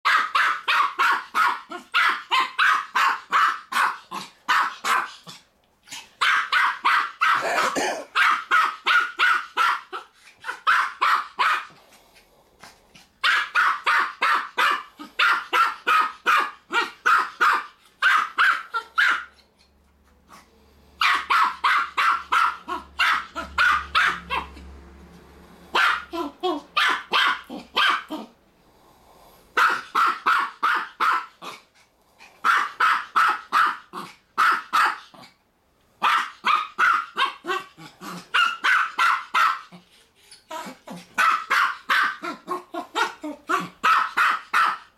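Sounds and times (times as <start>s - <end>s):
small dog barking high-pitched: 0.0s - 5.3s, 6.2s - 11.8s, 13.2s - 19.4s, 21.0s - 24.6s, 25.7s - 28.3s, 29.6s - 31.6s, 32.4s - 35.3s, 36.0s - 39.8s, 41.2s - 44.9s.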